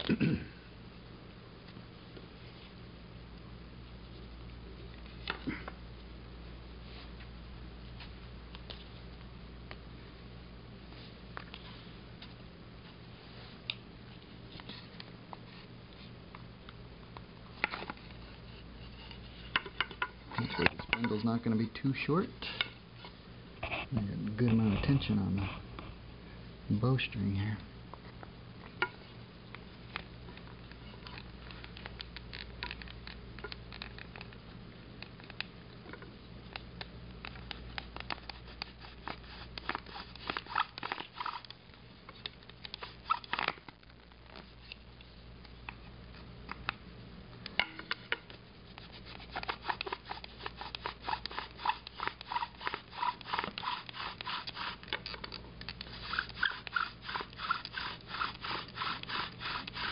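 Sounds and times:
bow drill dry scraping: 38.1s - 41.5s, 48.8s - 55.0s, 55.8s - 59.9s.

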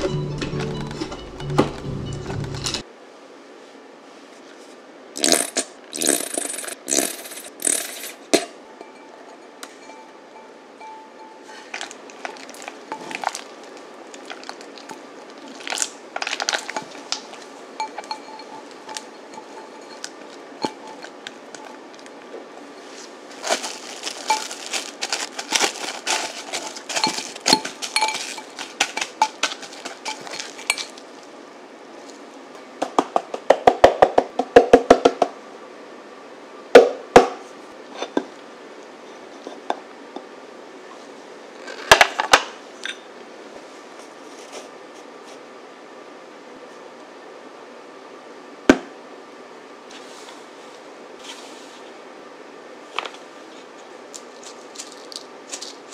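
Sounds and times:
plastic cling wrap crinkling: 11.5s - 22.2s, 23.0s - 31.3s, 53.7s - 55.9s
bowls clinking on countertop: 16.5s - 21.7s, 26.1s - 31.0s.

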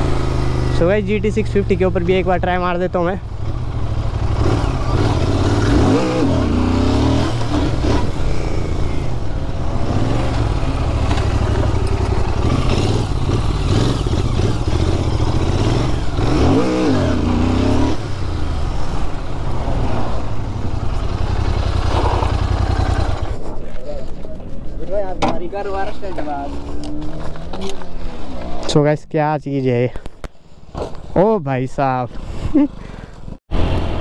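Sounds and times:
motorcycle engine and exhaust: 0.0s - 24.9s, 32.1s - 34.0s.

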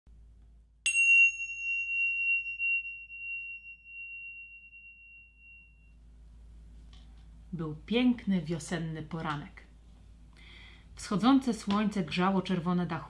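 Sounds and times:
bell-like chime ringing: 0.9s - 6.0s.

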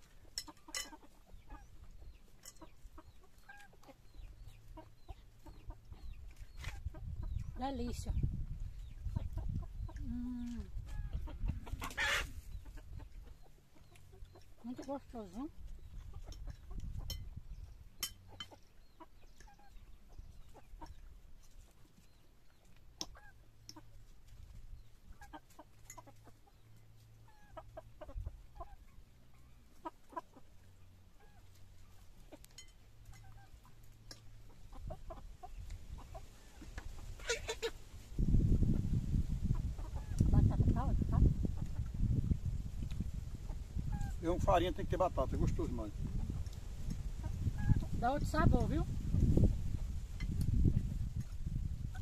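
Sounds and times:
chickens clucking: 0.0s - 52.0s
chicken squawk: 10.8s - 13.5s, 27.2s - 30.5s, 34.7s - 37.8s, 39.5s - 41.3s.

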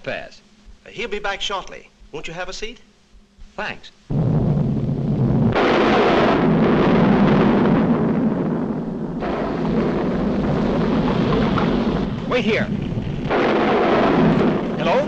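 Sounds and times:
volcano eruption rumbling roar: 4.1s - 15.0s.

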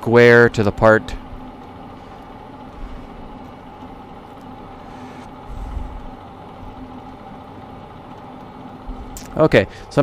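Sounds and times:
lathe machine hum: 0.0s - 10.0s.

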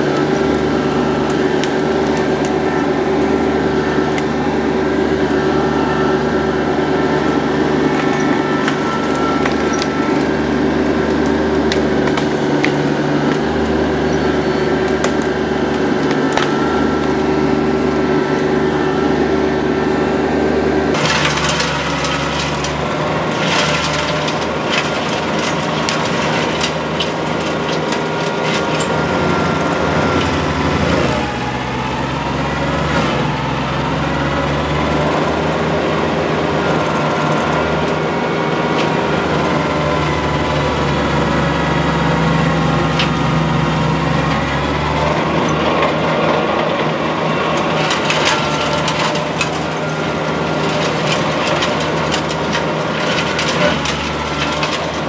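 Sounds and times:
branches cracking and snapping: 0.0s - 4.4s, 6.9s - 18.6s, 20.9s - 35.2s, 47.5s - 55.0s
diesel tractor engine running: 0.0s - 55.0s.

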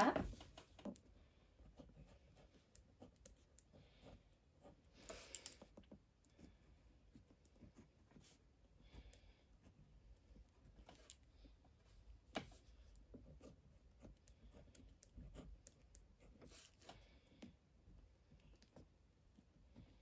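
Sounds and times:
pen scratching on paper: 1.6s - 4.9s, 12.4s - 20.0s.

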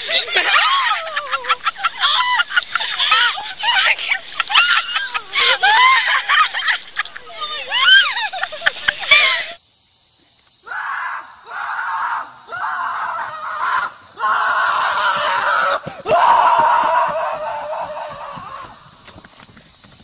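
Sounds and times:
horse screaming: 10.7s - 18.8s.

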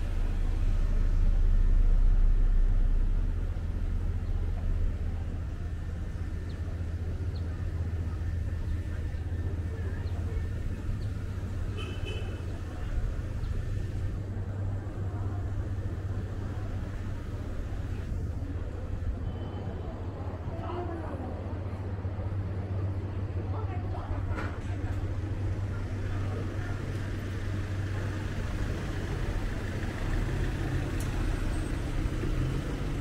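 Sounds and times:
motor vehicle rumble: 0.0s - 33.0s
traffic hum: 0.0s - 33.0s.

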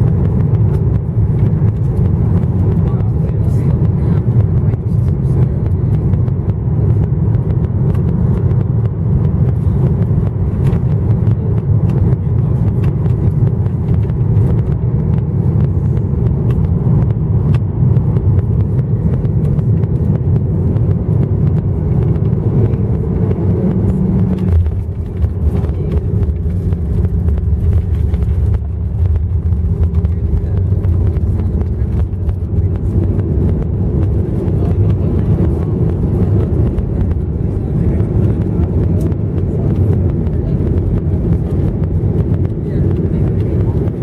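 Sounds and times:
jet engines and airflow in cabin: 0.0s - 44.0s
jet touching down and rolling: 0.0s - 44.0s.

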